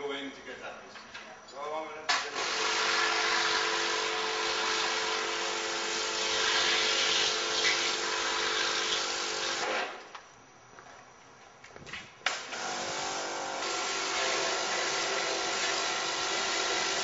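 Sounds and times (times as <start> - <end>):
pressure washer water jet hissing: 2.2 - 9.6, 12.6 - 17.0
pump humming: 2.2 - 10.1, 12.3 - 17.0.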